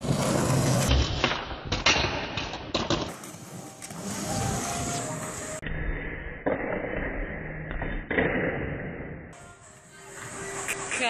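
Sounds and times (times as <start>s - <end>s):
skateboard wheels rolling on concrete: 0.0s - 5.6s, 9.4s - 11.0s.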